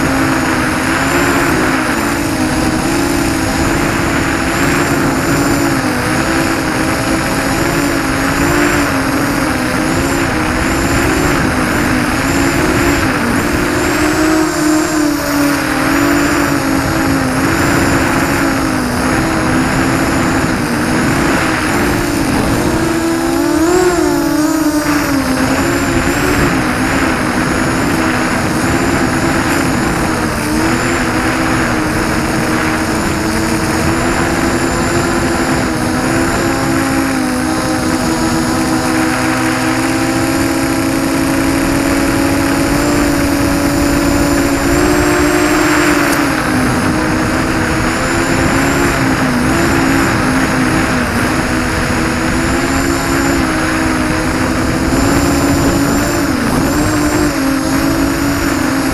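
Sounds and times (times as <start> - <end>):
drone motors buzzing: 0.0 - 58.9
rush of air: 8.8 - 34.4.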